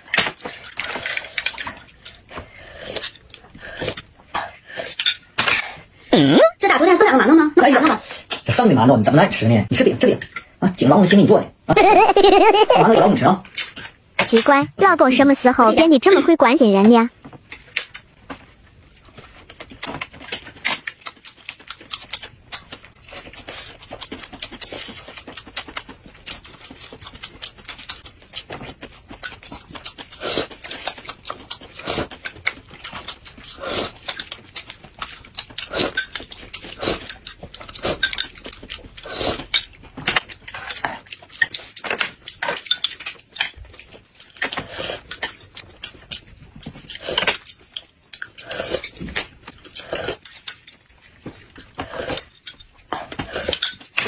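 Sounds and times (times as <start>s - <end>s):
chewing and sipping: 0.0s - 5.2s, 18.7s - 54.0s.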